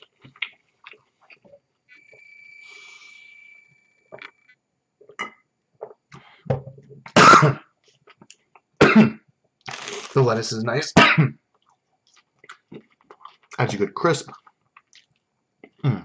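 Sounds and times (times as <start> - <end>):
man coughing hard: 7.2 - 7.6, 8.8 - 9.2, 11.0 - 11.4.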